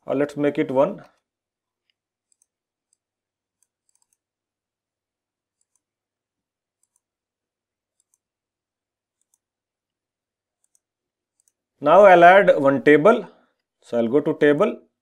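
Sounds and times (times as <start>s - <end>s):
faint computer mouse clicks: 1.1s - 3.0s, 3.6s - 4.2s, 6.8s - 7.1s, 7.9s - 8.3s, 10.6s - 11.6s.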